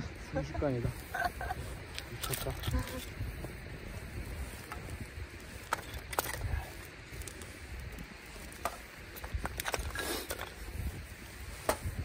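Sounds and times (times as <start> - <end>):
wood fire crackling: 0.0 - 12.0
sharp pops of fire: 1.8 - 10.8.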